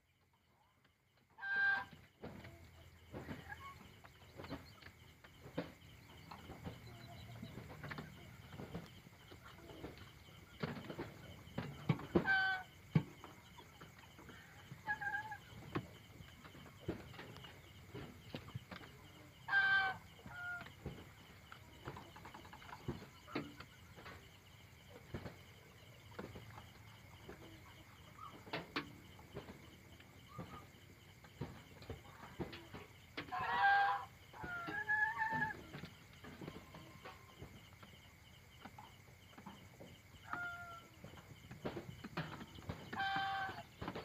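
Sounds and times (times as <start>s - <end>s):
chickens clucking softly: 0.4s - 44.0s
chicken call: 1.4s - 2.0s, 19.5s - 20.7s, 33.2s - 35.6s, 42.9s - 43.7s.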